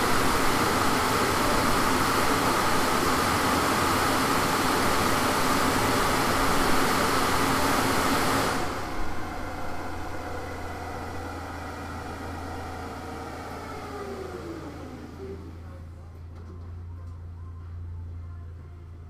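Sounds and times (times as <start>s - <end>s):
engine and drivetrain hum: 0.0s - 19.0s.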